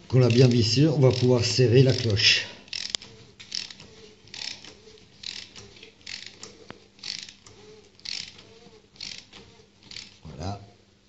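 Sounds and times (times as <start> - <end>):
ratchet wrench clicking: 0.2 - 2.1, 2.7 - 8.4, 9.0 - 10.2.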